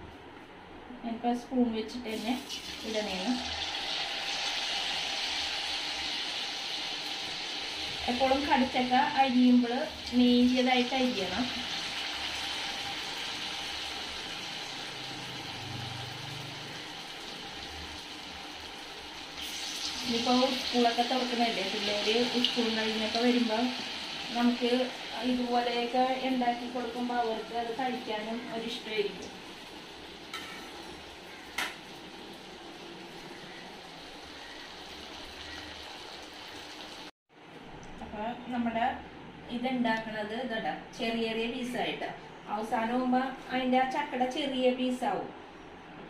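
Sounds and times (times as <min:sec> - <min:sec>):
oil sizzling while deep-frying: 0:02.0 - 0:37.2.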